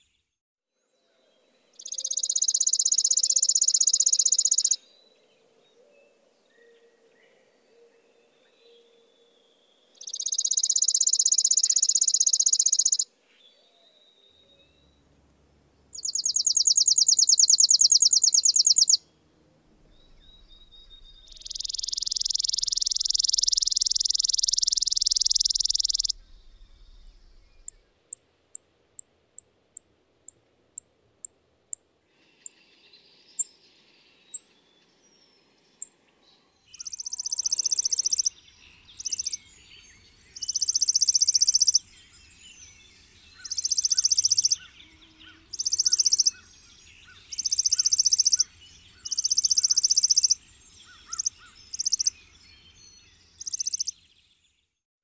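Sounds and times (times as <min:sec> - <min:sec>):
sparrow trilling: 0:01.8 - 0:04.8, 0:10.0 - 0:13.0, 0:15.9 - 0:19.0, 0:19.8 - 0:29.5, 0:36.7 - 0:54.1.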